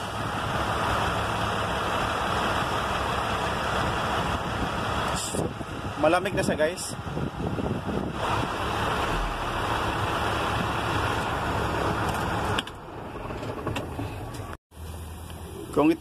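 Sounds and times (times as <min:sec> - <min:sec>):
low engine hum: 0:00.0 - 0:16.0.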